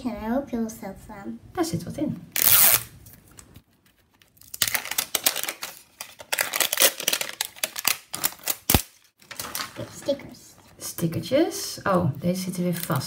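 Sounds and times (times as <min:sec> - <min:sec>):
plastic wrapping crackling: 0:03.8 - 0:10.2.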